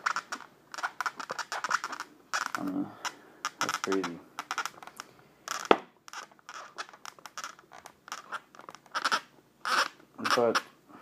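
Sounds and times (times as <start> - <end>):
hands scratching foam box: 0.0 - 2.7.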